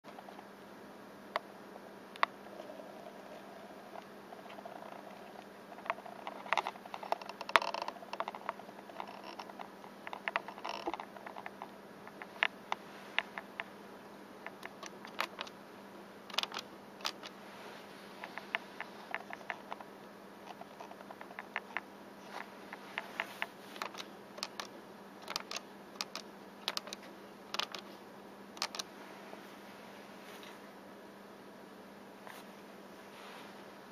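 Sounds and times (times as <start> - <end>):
faint steady hum: 0.0 - 33.9
calculator keys clicking: 16.3 - 17.3, 23.8 - 27.8, 28.6 - 28.8.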